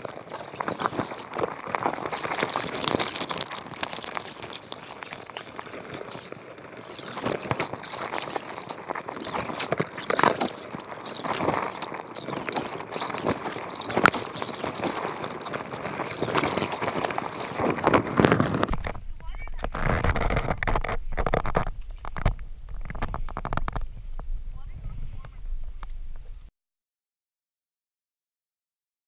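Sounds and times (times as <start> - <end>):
underwater crackling and scraping: 0.0 - 26.5.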